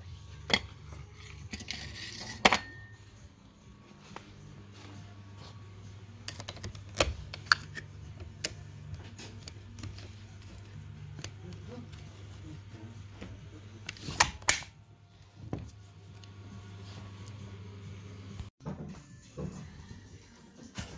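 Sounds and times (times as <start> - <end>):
stapler magazine snapping shut: 14.2 - 14.7.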